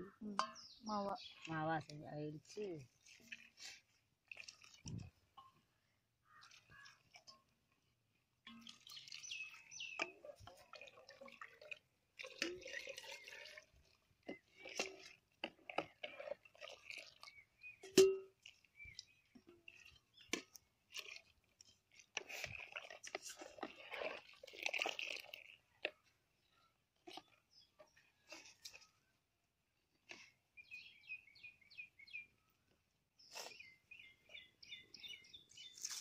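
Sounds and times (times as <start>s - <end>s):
porridge pouring and splashing: 0.5s - 36.0s
wooden spoon scraping steel bowl: 20.9s - 25.6s.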